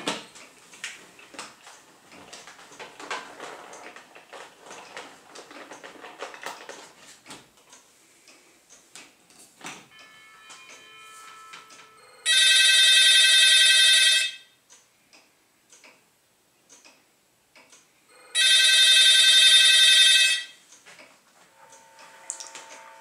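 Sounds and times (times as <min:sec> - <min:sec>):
telephone ringing: 0:09.9 - 0:14.6, 0:18.1 - 0:20.6, 0:21.5 - 0:23.0.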